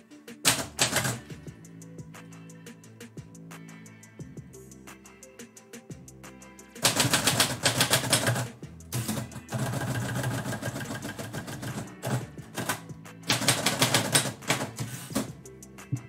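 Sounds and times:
background music: 0.0 - 16.0
typewriter key strikes: 0.5 - 1.2, 6.9 - 15.3.

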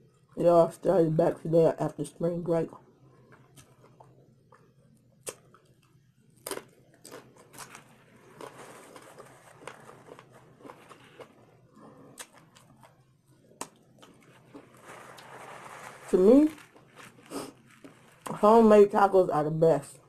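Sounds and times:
crunching taco shell: 3.4 - 18.4
paper napkin rustling: 7.7 - 11.3, 14.1 - 18.8.

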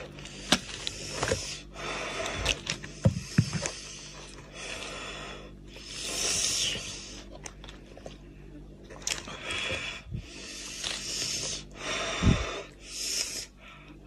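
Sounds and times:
breathing: 9.4 - 14.0.

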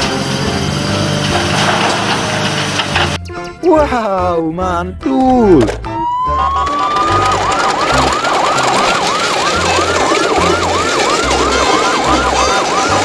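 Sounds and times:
electronic siren yelping: 5.8 - 13.0.

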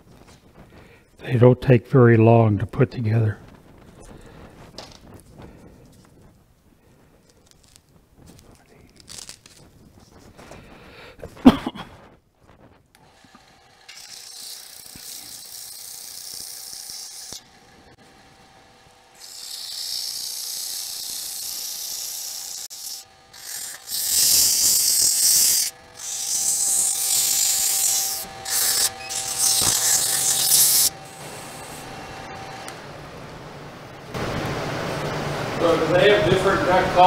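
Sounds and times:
wood scraping on a lathe: 13.0 - 32.7
lathe motor whine: 13.0 - 34.1.

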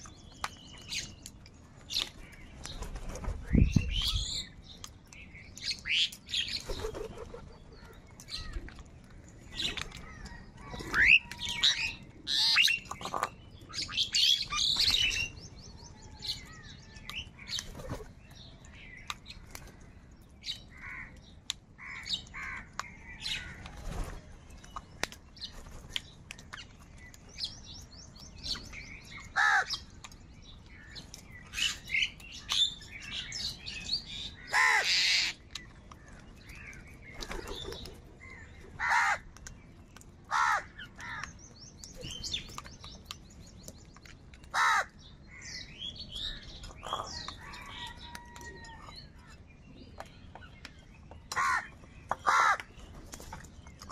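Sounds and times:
crows cawing: 21.8 - 22.8, 29.4 - 29.7, 34.4 - 35.4, 38.3 - 39.2, 40.3 - 41.2, 44.5 - 45.0, 51.3 - 52.7.

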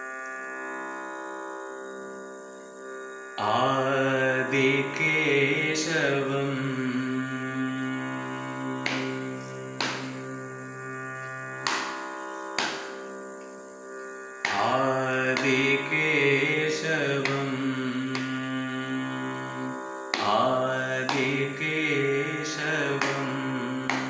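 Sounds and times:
steady drone: 2.9 - 24.0
man singing: 3.4 - 10.7, 14.5 - 24.0.

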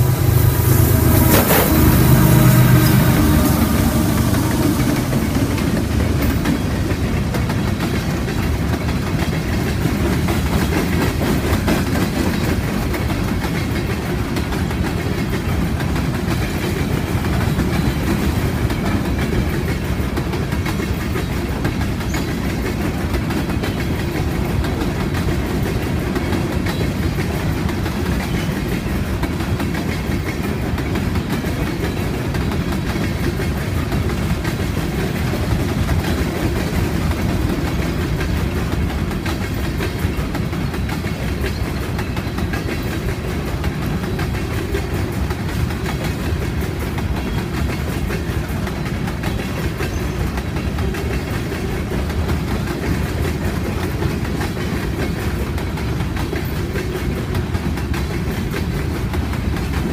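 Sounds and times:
rail car wheels rumbling: 0.0 - 59.9
wheels clicking over rail joints: 2.3 - 59.9.

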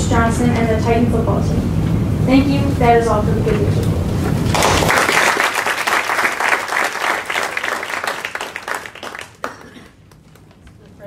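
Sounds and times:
small group clapping: 4.5 - 11.0.

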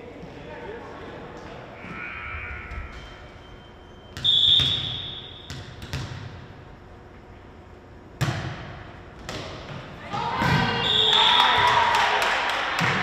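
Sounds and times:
referee's whistle: 1.9 - 5.5, 10.6 - 11.7
ball bouncing on gym floor: 4.2 - 6.5, 8.2 - 10.8.

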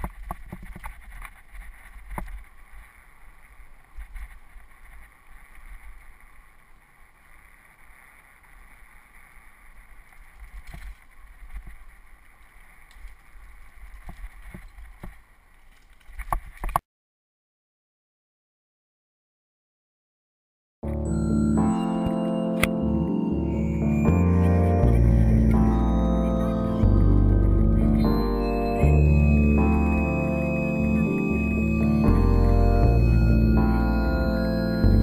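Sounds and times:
bike tyres on dirt trail: 0.0 - 16.8.

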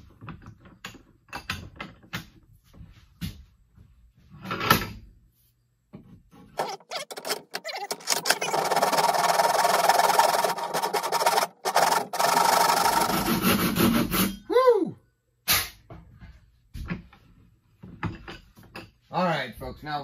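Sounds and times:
hand saw cutting wood: 6.6 - 14.4.

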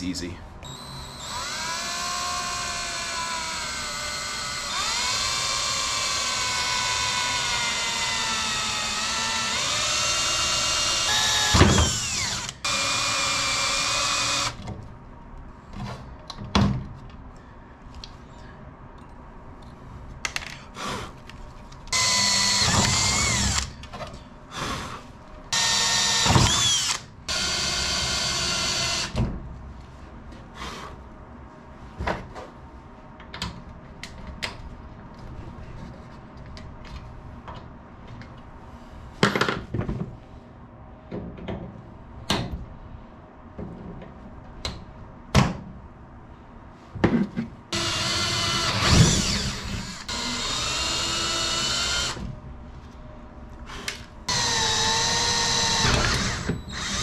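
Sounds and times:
cordless drill drilling rivets: 0.6 - 14.6, 21.9 - 23.7, 25.6 - 29.2, 47.8 - 52.2, 54.3 - 57.0.

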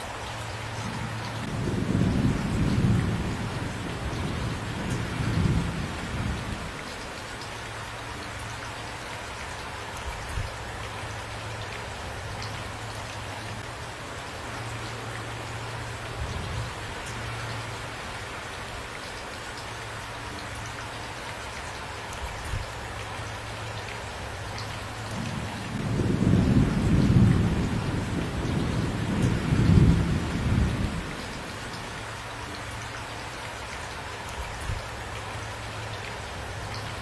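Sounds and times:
steady rain falling: 0.0 - 37.0
rolling thunder: 1.4 - 6.7, 25.2 - 31.3.

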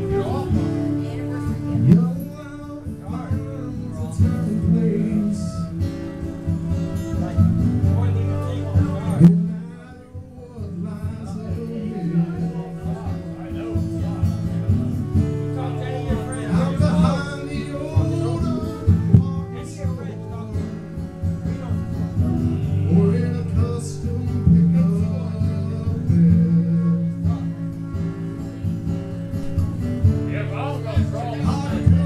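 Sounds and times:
flute playing: 0.0 - 10.0, 11.0 - 23.5
man singing: 0.0 - 27.9, 30.5 - 32.0
acoustic guitar: 0.0 - 32.0.

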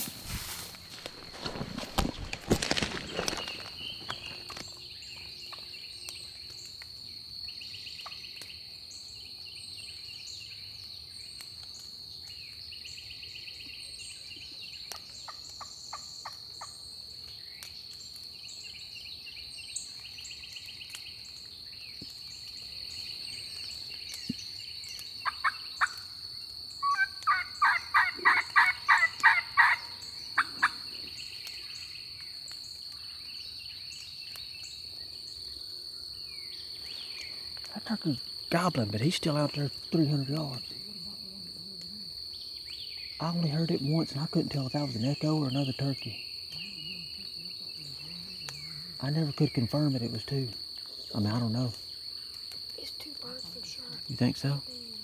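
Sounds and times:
high insect drone: 0.0 - 55.0
turkey yelping: 26.8 - 30.8.

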